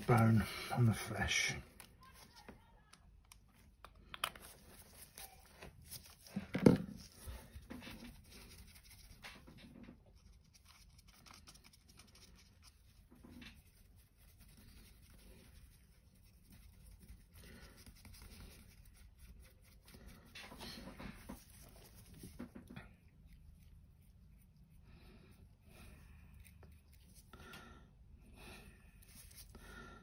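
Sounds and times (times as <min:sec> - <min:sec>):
small rustles and taps: 0:20.3 - 0:23.1.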